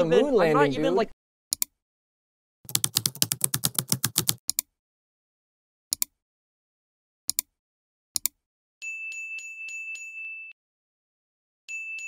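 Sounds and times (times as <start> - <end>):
rapid typing on a keyboard: 2.7 - 4.4.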